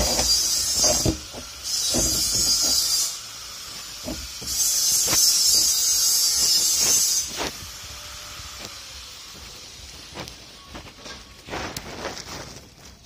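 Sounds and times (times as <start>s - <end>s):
angle grinder grinding steel: 0.0s - 10.3s.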